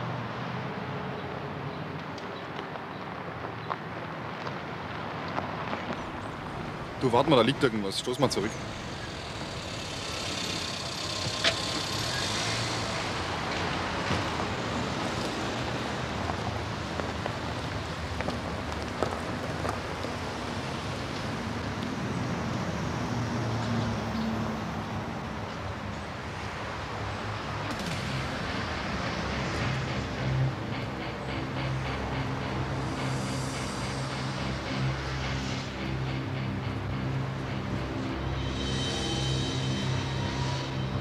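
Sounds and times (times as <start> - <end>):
tyres rolling on gravel: 2.5 - 21.9.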